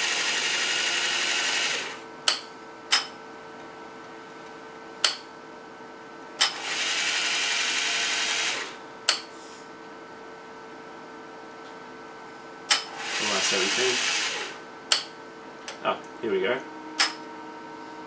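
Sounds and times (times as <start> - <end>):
film transport whirring: 0.0 - 5.2, 6.3 - 9.2, 12.6 - 17.8.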